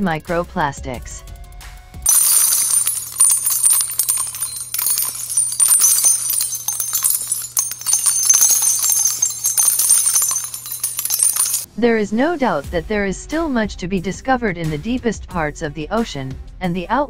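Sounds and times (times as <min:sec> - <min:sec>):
jingling bells: 0:02.1 - 0:11.7.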